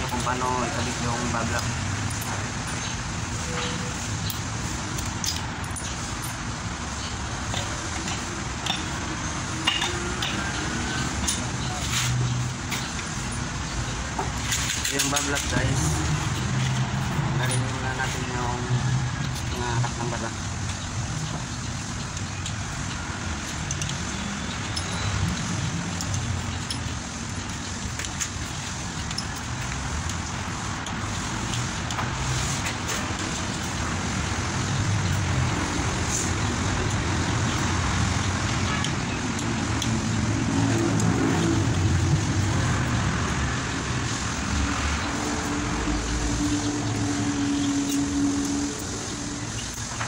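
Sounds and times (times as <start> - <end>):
road traffic and engine noise: 0.0 - 50.0
metal parts clicking: 1.5 - 15.7, 20.7 - 32.0.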